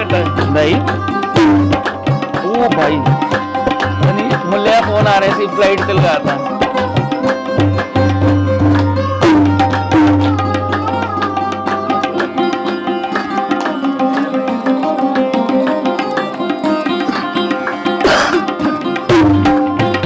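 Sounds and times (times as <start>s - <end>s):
sarod melody: 0.0s - 20.0s
tabla playing a rhythm: 0.0s - 20.0s.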